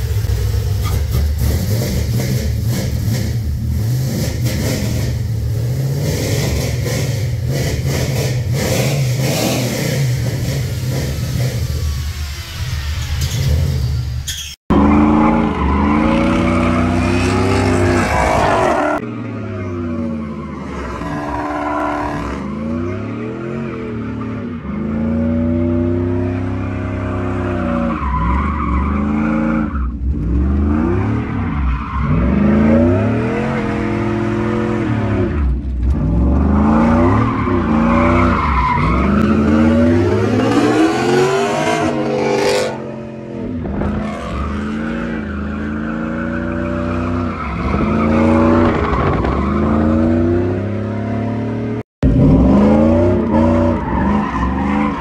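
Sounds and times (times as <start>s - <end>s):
tires squealing: 6.2s - 35.5s, 36.1s - 50.7s, 52.2s - 55.0s
car engine revving: 14.7s - 55.0s.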